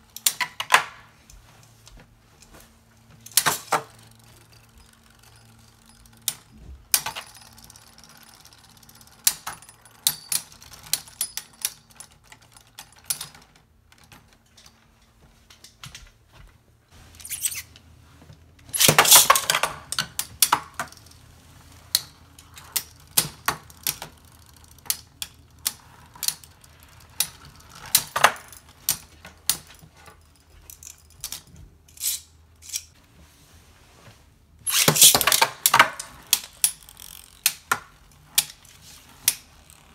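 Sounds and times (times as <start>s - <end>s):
spinning tops clashing: 18.7s - 20.0s, 34.7s - 37.4s
tops and launcher handled: 18.7s - 20.6s, 34.7s - 36.1s.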